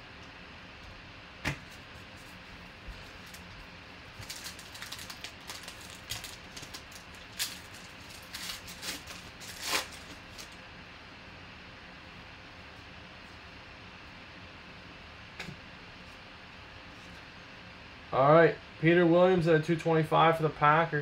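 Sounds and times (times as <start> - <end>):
foil wrapper crinkling and tearing: 4.1 - 10.6.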